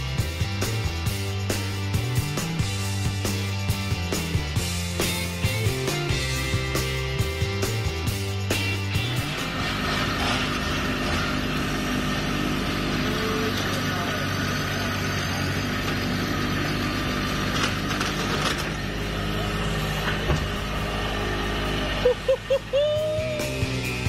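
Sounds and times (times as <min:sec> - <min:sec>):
chainsaw cutting tree trunk: 0:09.0 - 0:22.6.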